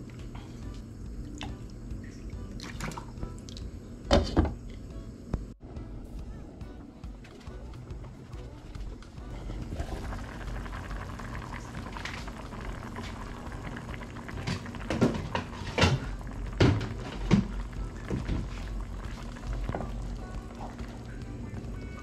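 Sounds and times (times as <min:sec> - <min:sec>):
stew bubbling: 0:09.2 - 0:22.0.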